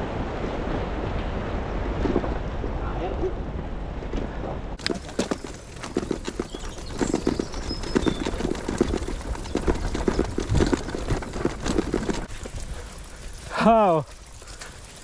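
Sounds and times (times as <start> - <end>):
bicycle rattling and knocking: 4.8 - 15.0.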